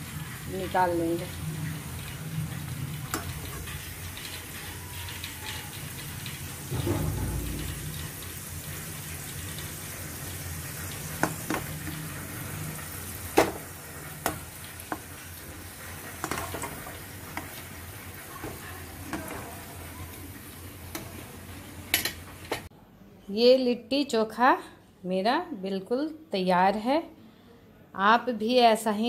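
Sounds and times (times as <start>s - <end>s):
dough balls sizzling in fat: 0.0s - 22.7s.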